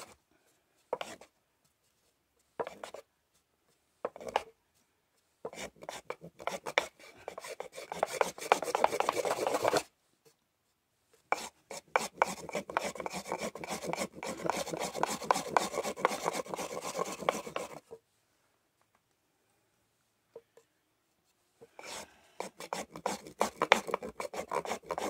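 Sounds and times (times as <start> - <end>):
wooden block scraping on board: 0.9 - 1.3, 2.6 - 3.0, 5.5 - 9.9, 11.3 - 18.0, 21.7 - 25.0.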